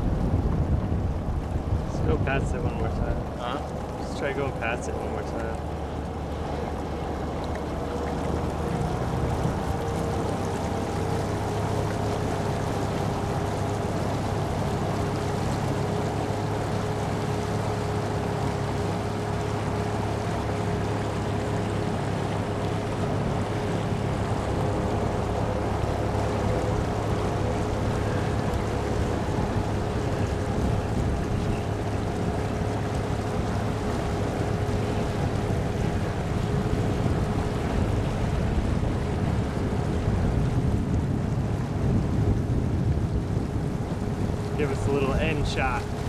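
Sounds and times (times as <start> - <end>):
wind noise: 0.0 - 6.4, 22.8 - 46.0
boat motor running: 0.0 - 46.0
water noise: 0.0 - 46.0.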